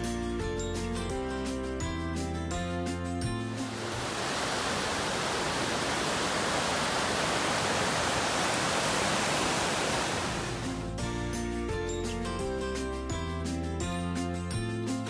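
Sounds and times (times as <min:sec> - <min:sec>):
stream rushing over rocks: 0:03.6 - 0:10.9.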